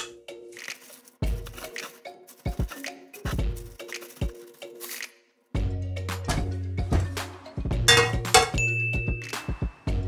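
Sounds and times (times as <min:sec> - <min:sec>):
background music with plucky beat: 0:00.0 - 0:10.0.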